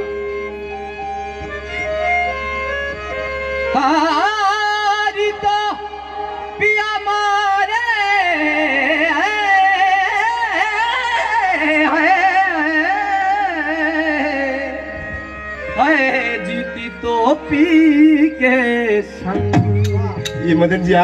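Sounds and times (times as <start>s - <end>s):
harmonium chord: 0.0s - 21.0s
man singing wordless vocal run: 3.7s - 15.0s, 15.8s - 19.6s.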